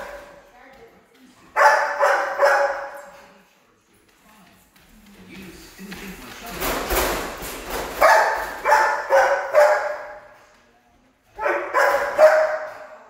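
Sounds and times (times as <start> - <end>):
dog barking in large room: 0.0 - 0.5, 1.4 - 3.5, 7.8 - 10.5, 11.3 - 13.0.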